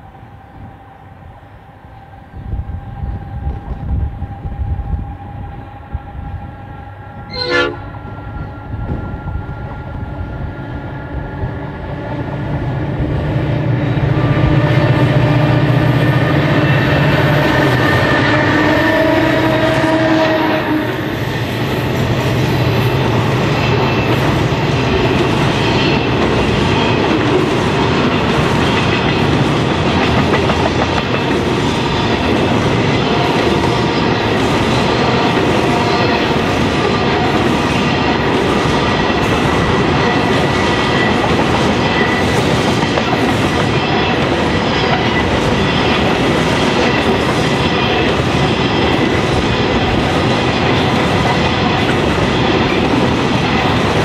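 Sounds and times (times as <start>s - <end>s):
diesel locomotives passing: 0.0s - 54.0s
short high horn toot: 7.3s - 8.0s.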